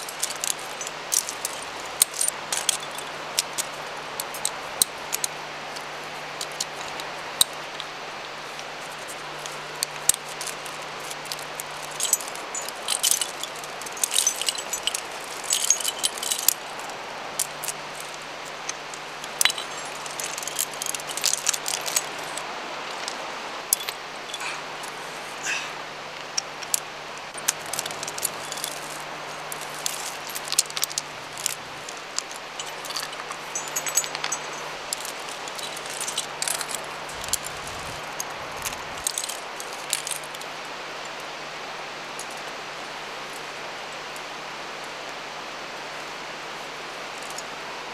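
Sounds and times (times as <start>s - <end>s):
climbing gear clinking: 0.0s - 7.9s, 8.5s - 40.5s, 47.1s - 47.5s.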